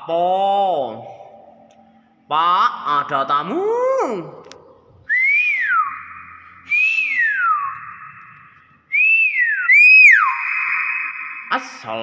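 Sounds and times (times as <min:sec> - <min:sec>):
myna bird whistling: 0:05.1 - 0:11.5.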